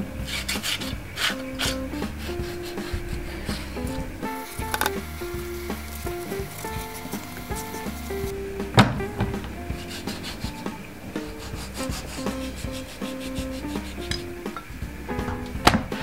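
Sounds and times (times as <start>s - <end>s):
background music: 0.0s - 16.0s
knife sawing through fat: 0.2s - 8.3s, 9.8s - 10.6s, 11.3s - 14.1s.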